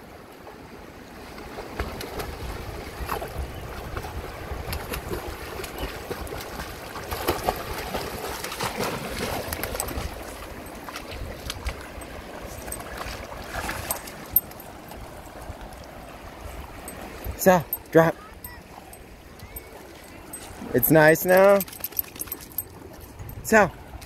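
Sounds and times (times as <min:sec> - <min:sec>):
dogs splashing in water: 0:01.2 - 0:23.1
wind rumble on microphone: 0:01.4 - 0:06.8
running water: 0:02.5 - 0:24.0.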